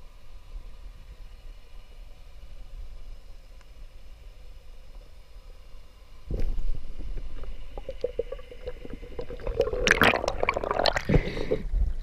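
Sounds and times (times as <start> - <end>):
underwater gurgling and bubbling: 6.3 - 12.0.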